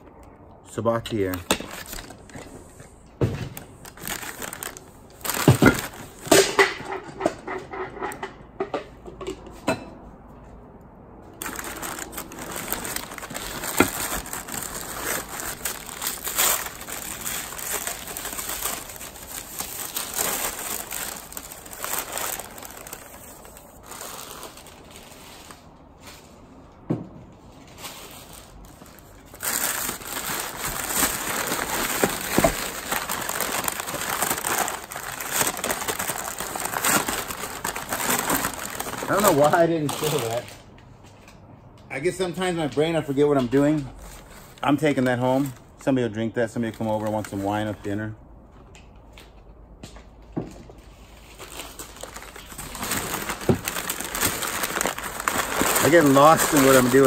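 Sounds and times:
paper crumpling and rustling: 1.1 - 6.4, 11.4 - 26.3, 27.6 - 40.6, 50.8 - 57.0.

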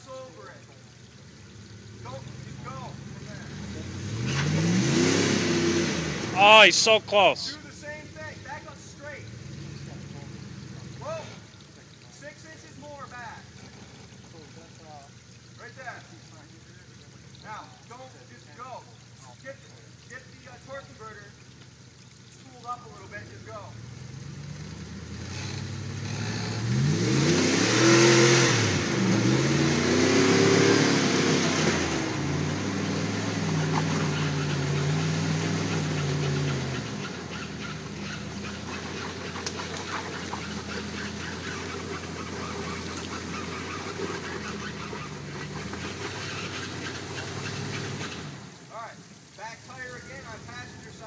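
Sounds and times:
truck engine revving: 1.9 - 7.8, 24.0 - 48.8.

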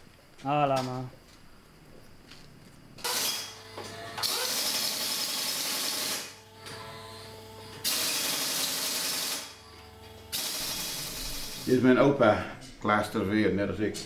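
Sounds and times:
steady mechanical hum: 0.0 - 14.0
compressed air hissing: 10.3 - 11.9.

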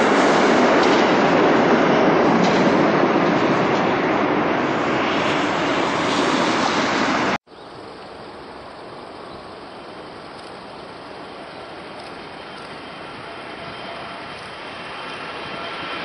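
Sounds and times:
loud jet passing overhead: 0.0 - 7.4, 12.1 - 16.0
distant jet airliner: 0.0 - 16.0.

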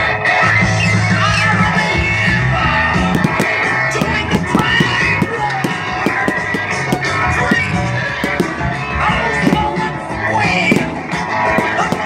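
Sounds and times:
rock music with guitar and drums: 0.0 - 12.0
short sharp cracks: 3.1 - 8.8, 10.7 - 12.0.

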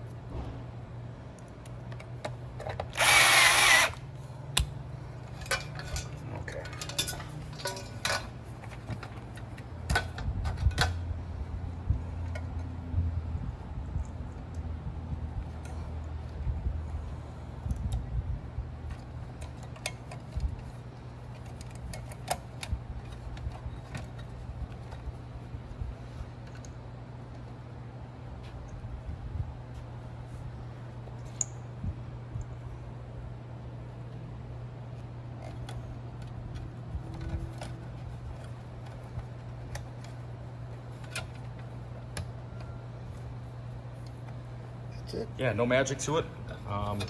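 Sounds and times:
low steady hum: 0.0 - 47.0
light clicks and taps of handling metal: 4.5 - 11.0.

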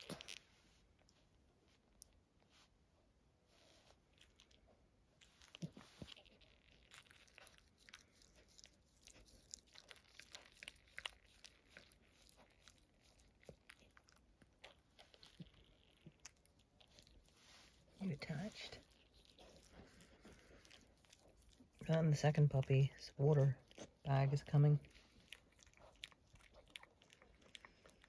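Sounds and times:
dog licking wet smacking: 5.2 - 22.8, 23.4 - 28.0.

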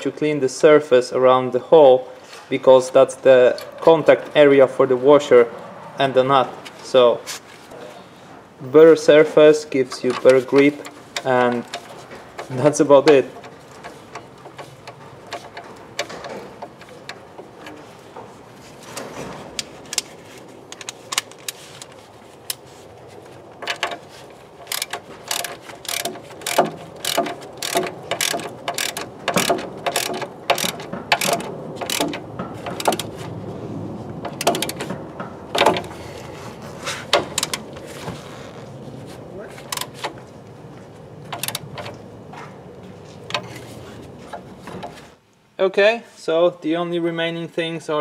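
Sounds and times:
ratchet wrench clicking: 24.6 - 33.2, 34.3 - 34.8, 39.7 - 39.9, 41.4 - 41.6.

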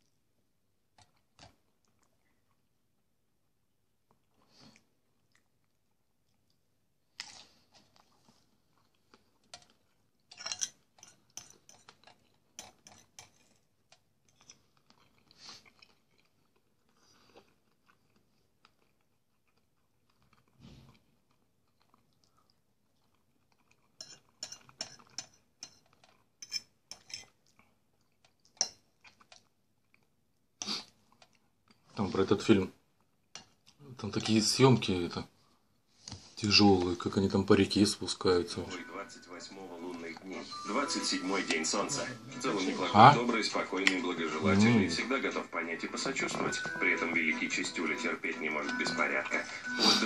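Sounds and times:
close-up chewing: 0.9 - 3.1, 3.9 - 32.0.

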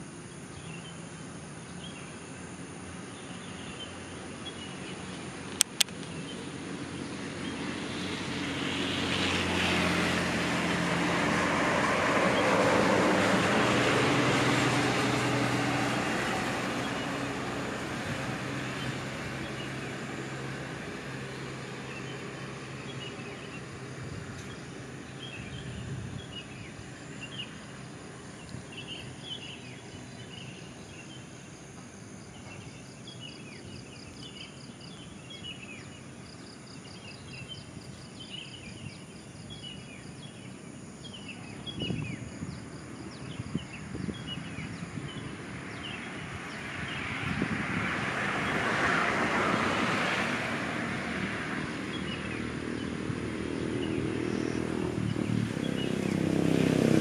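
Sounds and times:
low steady hum: 0.0 - 8.2
birds chirping: 51.9 - 56.2.

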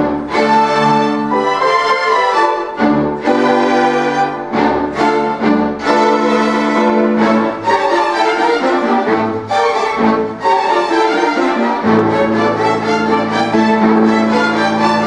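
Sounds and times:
string orchestra playing: 0.0 - 15.0.

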